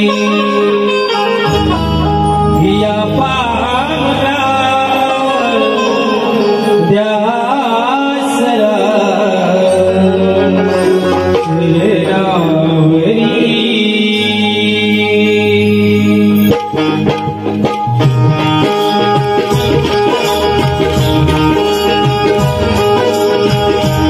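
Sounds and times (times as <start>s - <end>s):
man singing devotional song: 0.0s - 1.0s, 2.5s - 16.7s
instrumental accompaniment: 0.0s - 24.0s.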